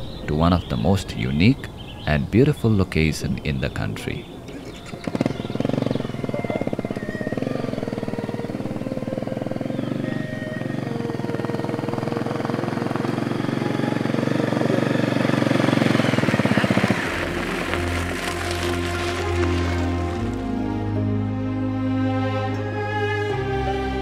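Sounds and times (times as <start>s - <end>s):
motorcycle engine running: 4.6s - 20.6s.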